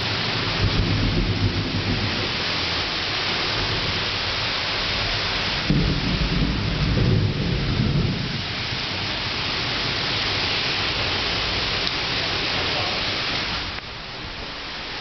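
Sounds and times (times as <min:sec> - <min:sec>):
heavy rain pouring: 0:00.0 - 0:15.0
low rumble of thunder: 0:00.2 - 0:04.2, 0:04.9 - 0:10.5.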